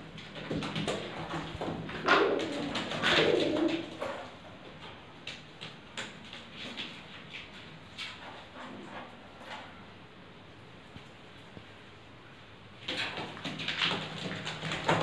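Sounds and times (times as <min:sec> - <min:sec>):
pigeons cooing: 0:00.4 - 0:04.4.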